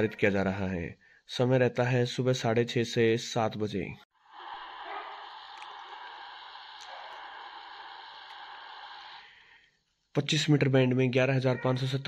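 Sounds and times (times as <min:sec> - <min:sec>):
radio static hiss: 0:04.2 - 0:09.4.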